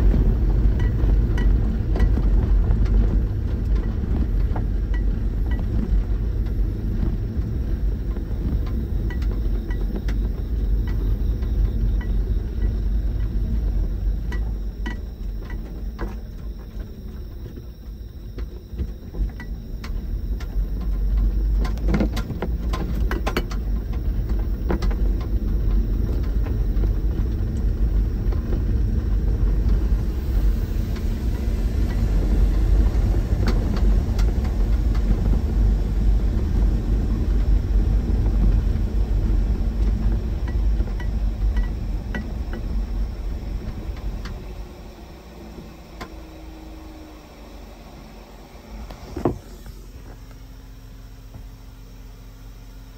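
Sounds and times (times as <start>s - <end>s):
engine and tyre rumble: 0.0s - 52.9s.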